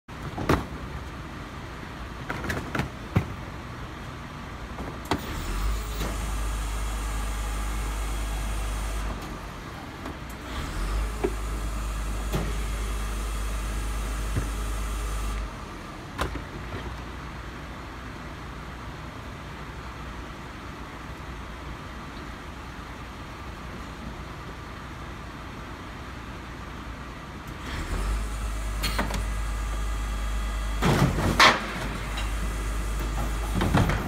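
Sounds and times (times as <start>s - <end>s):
garbage truck hydraulics humming: 5.0s - 16.9s, 27.5s - 34.0s.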